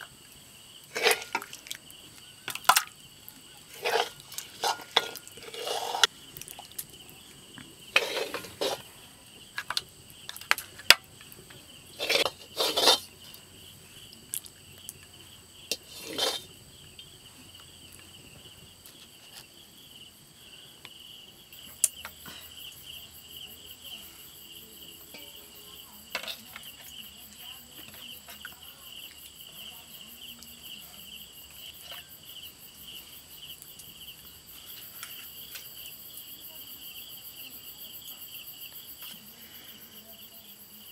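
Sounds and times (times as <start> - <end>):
insect chirring: 0.0 - 40.9
metal ladle scraping steel bowl: 0.9 - 1.8, 3.7 - 6.1, 7.9 - 8.9, 12.0 - 13.1, 15.7 - 16.5, 26.1 - 26.8.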